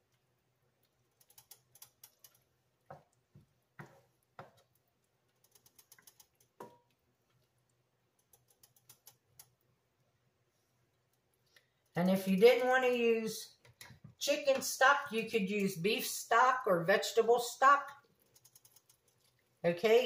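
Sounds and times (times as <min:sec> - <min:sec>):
plastic spatula stirring in skillet: 0:00.0 - 0:11.9, 0:17.9 - 0:20.0.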